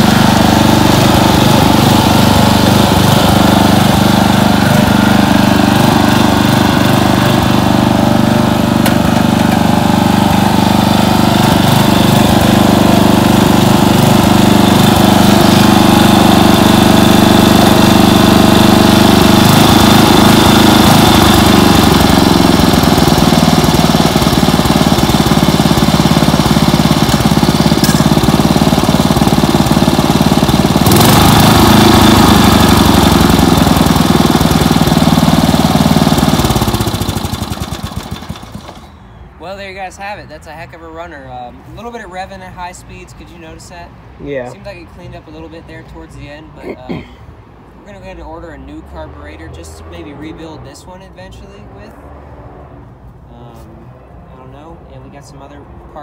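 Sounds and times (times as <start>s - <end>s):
lawn tractor engine running: 0.0s - 39.1s.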